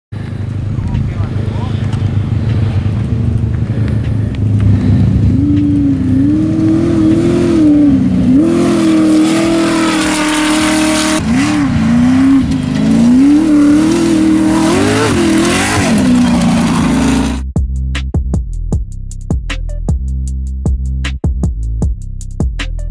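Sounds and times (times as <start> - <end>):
race engine revving: 0.2 - 17.4.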